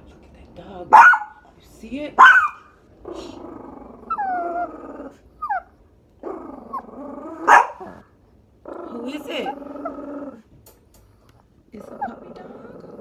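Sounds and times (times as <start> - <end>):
dog barking: 0.9 - 1.4, 2.2 - 2.7, 7.4 - 8.0
dog growling: 2.2 - 13.0.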